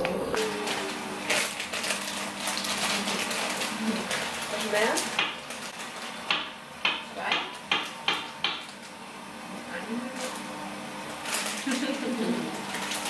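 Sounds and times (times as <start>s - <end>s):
plastic food packet crinkling: 0.4s - 6.2s, 11.1s - 13.0s.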